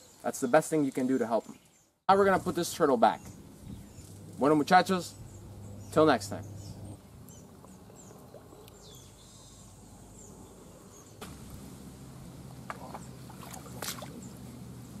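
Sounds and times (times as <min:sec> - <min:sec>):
low steady hum: 0:03.0 - 0:15.0
light water movement: 0:06.9 - 0:09.5, 0:11.3 - 0:15.0.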